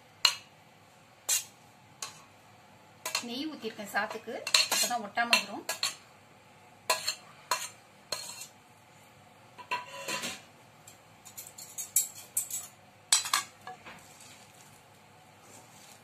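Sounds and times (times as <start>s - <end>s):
metal spoon scraping cookware: 6.9s - 8.5s, 9.6s - 10.4s.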